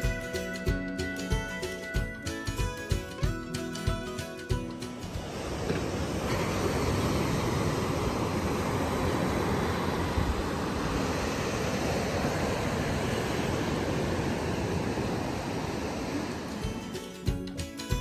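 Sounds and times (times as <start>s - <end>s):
ocean surf breaking: 0.0s - 18.0s
wind rumbling on microphone: 5.1s - 16.9s.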